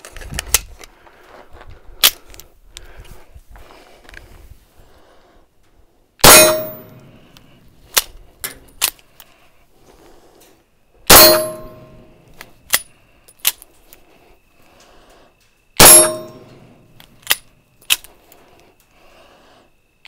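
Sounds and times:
short metallic ring: 6.2s - 7.2s, 11.1s - 12.2s, 15.8s - 16.7s
suppressed pistol shots: 6.2s - 7.2s, 11.1s - 12.1s, 15.8s - 16.6s
bolt action clicks: 6.3s - 9.4s, 11.1s - 14.0s, 15.8s - 18.2s.

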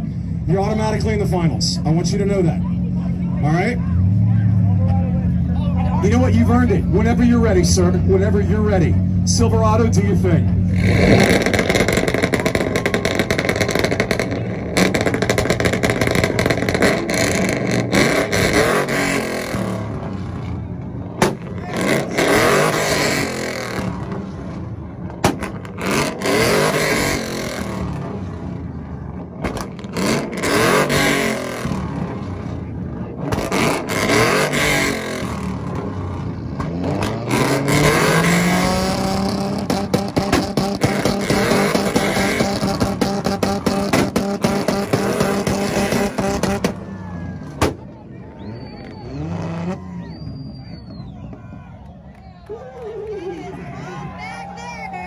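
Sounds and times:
pickup engine revving: 0.0s - 52.4s
exhaust pops and bangs: 10.8s - 19.7s, 21.1s - 22.4s, 25.0s - 26.2s, 29.2s - 31.0s, 35.3s - 46.9s, 47.5s - 48.0s.

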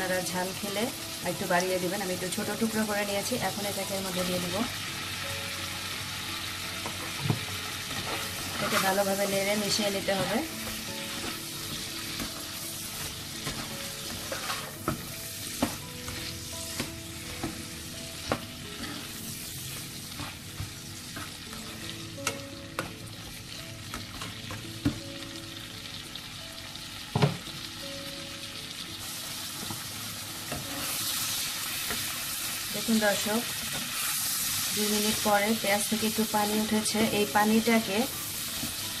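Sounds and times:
food sizzling in oil: 0.0s - 39.0s
spatula scraping and knocking pan: 6.8s - 22.9s.

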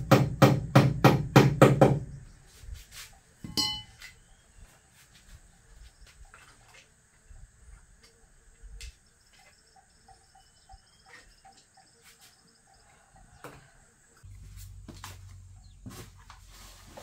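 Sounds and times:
crickets chirping: 3.5s - 14.3s.

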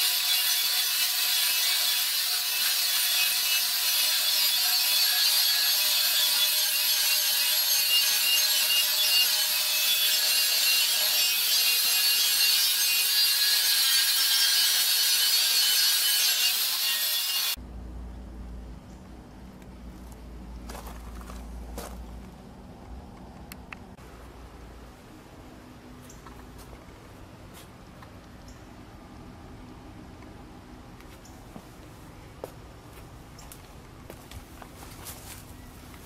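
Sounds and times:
angle grinder grinding metal: 0.0s - 17.6s.

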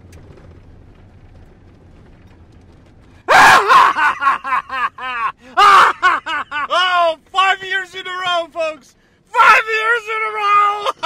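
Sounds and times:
van driving rumble: 0.0s - 11.0s
man yelling and whooping: 3.3s - 11.0s.

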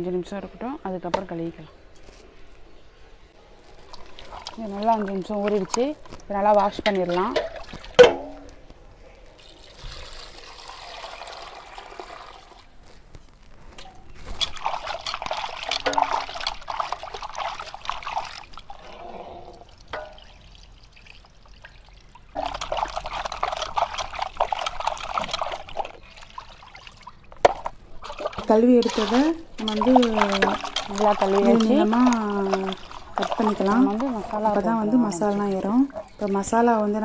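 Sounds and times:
water pouring into pot: 3.6s - 8.0s, 9.4s - 12.8s, 14.4s - 18.9s, 19.6s - 27.2s, 28.0s - 35.9s.

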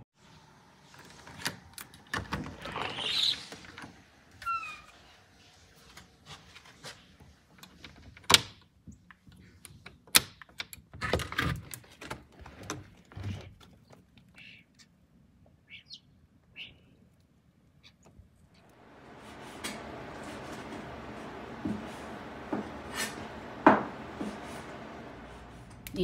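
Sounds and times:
door squeak: 2.2s - 5.1s.

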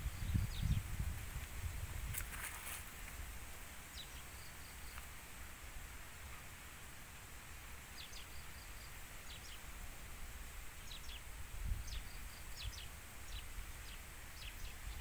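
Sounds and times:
small bird chirping: 0.0s - 1.0s, 8.0s - 9.7s, 10.8s - 15.0s
wind rumbling on microphone: 0.0s - 3.6s, 10.2s - 15.0s.

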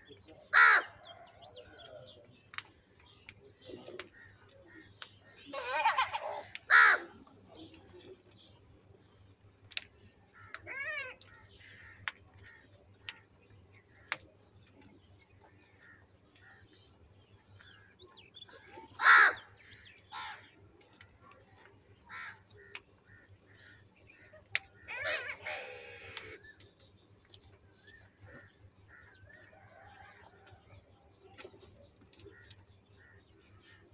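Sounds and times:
crows cawing: 0.5s - 1.2s, 5.6s - 7.2s, 18.6s - 20.5s, 22.1s - 23.8s, 24.7s - 26.6s
faint clicks: 26.0s - 27.6s.

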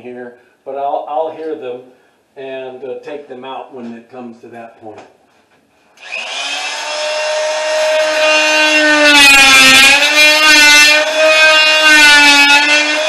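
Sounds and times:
multi-tool cutting drywall: 6.0s - 13.0s.

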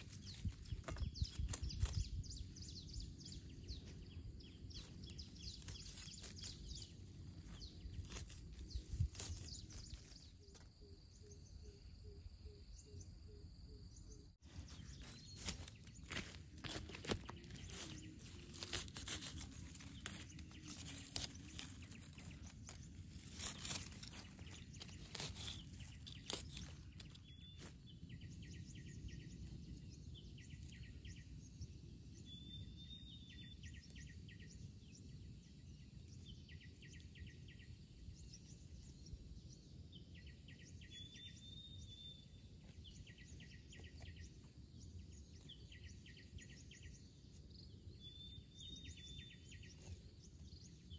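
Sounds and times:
crunching clicks and rustles: 0.0s - 2.6s, 4.6s - 10.7s, 14.6s - 27.8s
bird chirps: 0.0s - 50.9s.

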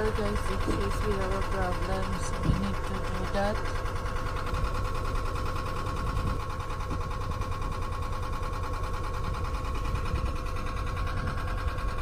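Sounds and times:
boat engine running: 0.0s - 12.0s
wind rumbling on microphone: 5.8s - 7.1s, 9.8s - 11.6s.

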